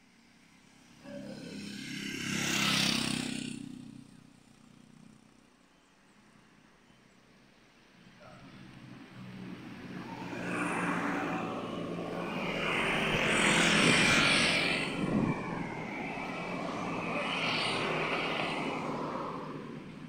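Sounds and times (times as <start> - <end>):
vehicles passing engine hum: 0.0 - 5.8, 7.4 - 20.0.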